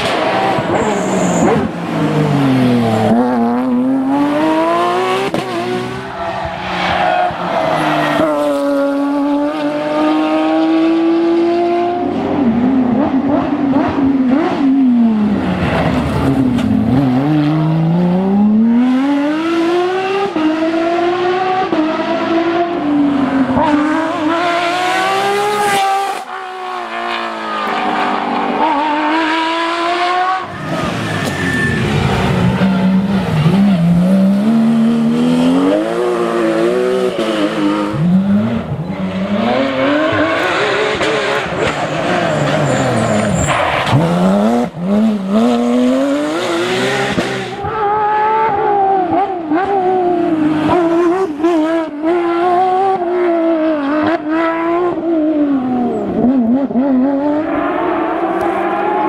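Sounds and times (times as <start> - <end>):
rally car engines at full throttle: 0.0 - 59.0.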